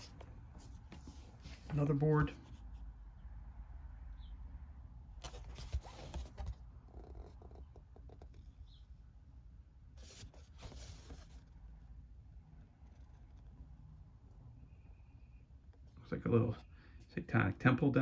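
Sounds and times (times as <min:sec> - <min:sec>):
cardboard boards scraping: 0:05.2 - 0:08.3, 0:10.0 - 0:11.6.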